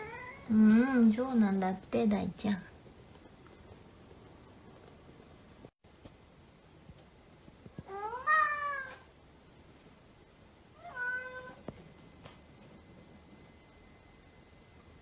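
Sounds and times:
cat meowing: 0:00.0 - 0:00.5, 0:07.8 - 0:09.0, 0:10.8 - 0:11.6.

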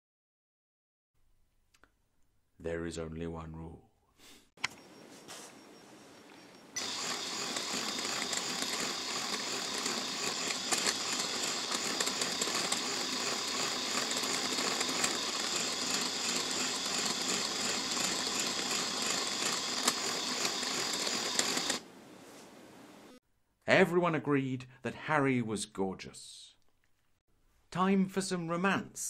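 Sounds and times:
plastic gears clattering: 0:06.8 - 0:21.8
small electric motor whirring: 0:06.8 - 0:21.8.

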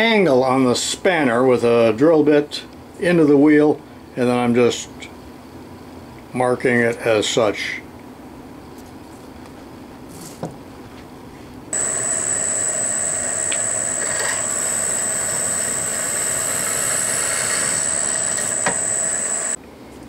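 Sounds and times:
high whine: 0:11.7 - 0:19.6
drill press drilling metal: 0:11.8 - 0:19.6.

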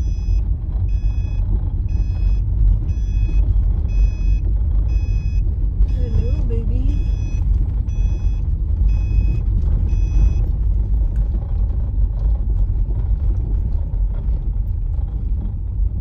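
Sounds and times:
electronic warning beep: 0:00.0 - 0:10.6
car driving on gravel: 0:00.0 - 0:16.0.

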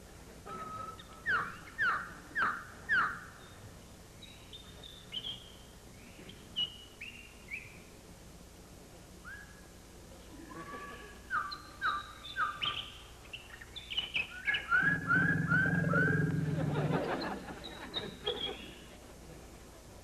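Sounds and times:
soft high whistled bird notes: 0:09.2 - 0:09.7, 0:13.8 - 0:16.4.

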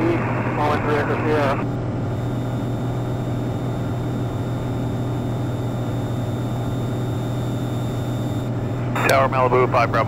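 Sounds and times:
aircraft engine drone in cabin: 0:00.0 - 0:10.0.

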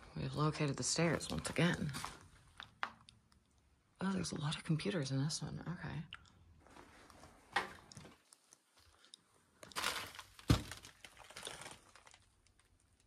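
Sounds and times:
debris crunching underfoot: 0:08.8 - 0:12.6.

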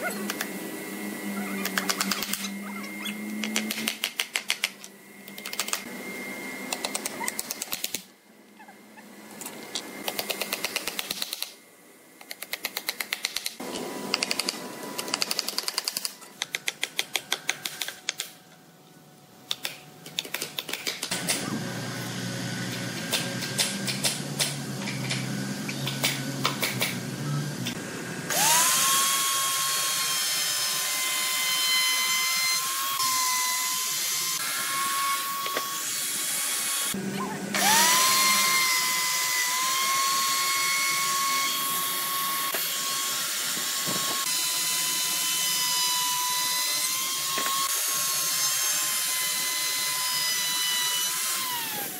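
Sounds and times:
wood router whining: 0:00.0 - 0:07.7, 0:21.2 - 0:51.9.

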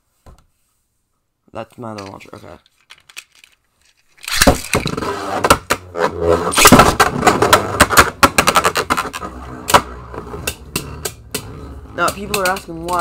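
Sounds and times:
plastic toys rattling: 0:02.0 - 0:05.0
sharp plastic clicks: 0:04.2 - 0:04.9.

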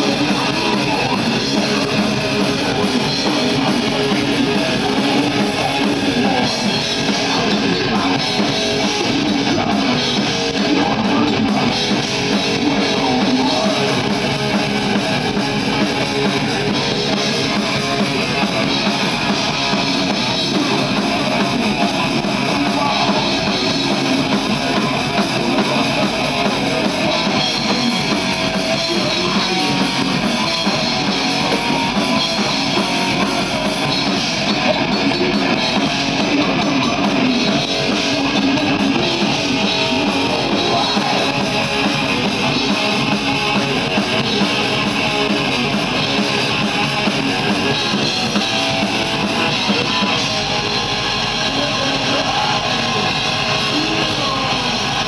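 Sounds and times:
distorted electric guitars: 0:00.0 - 0:55.0
drums: 0:00.0 - 0:55.0.

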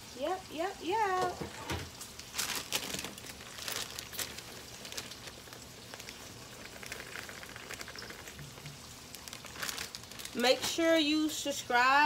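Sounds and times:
bacon sizzling in oil: 0:00.0 - 0:12.0
crackles and pops: 0:01.2 - 0:11.0.

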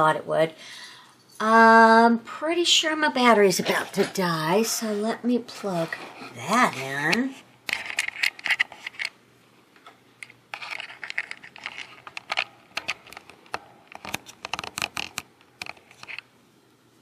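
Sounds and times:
crinkling rustling handling noise: 0:10.2 - 0:16.3.

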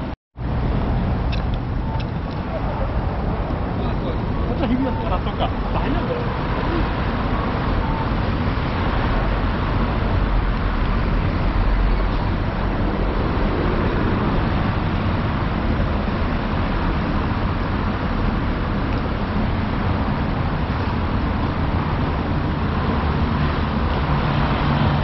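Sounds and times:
low vehicle rumble: 0:00.0 - 0:25.0.

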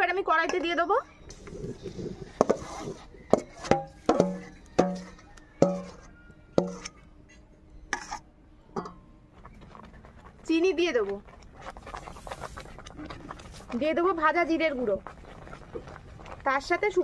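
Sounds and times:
metal ladle knocking on steel bowl: 0:03.3 - 0:06.0, 0:06.6 - 0:07.0.

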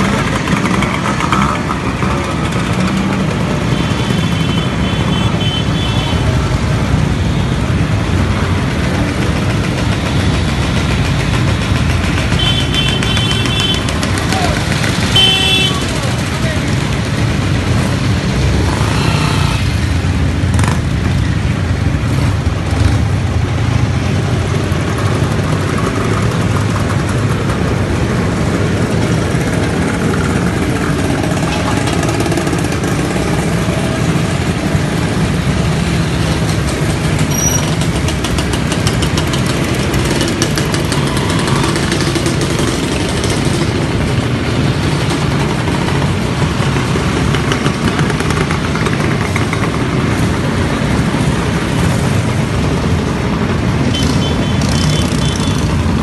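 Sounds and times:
motorcycle engines passing: 0:00.0 - 0:56.0.

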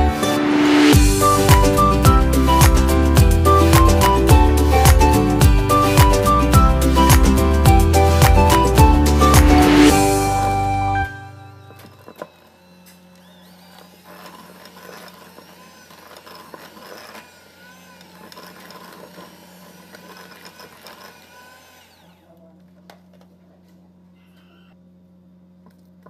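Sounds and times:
electric hand mixer running: 0:11.9 - 0:22.3.

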